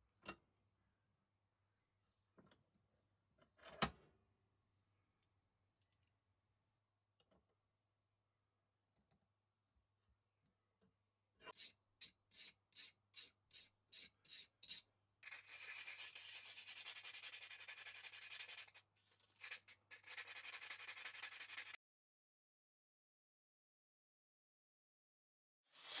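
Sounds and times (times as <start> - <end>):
sandpaper rubbing metal: 12.8 - 18.8, 19.4 - 21.8.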